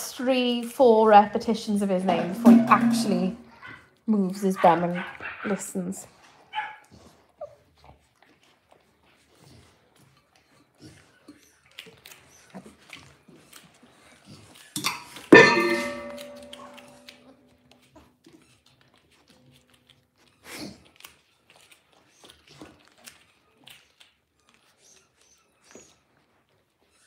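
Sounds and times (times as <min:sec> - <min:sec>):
metallic clang ringing: 0:02.1 - 0:03.6, 0:15.3 - 0:17.2.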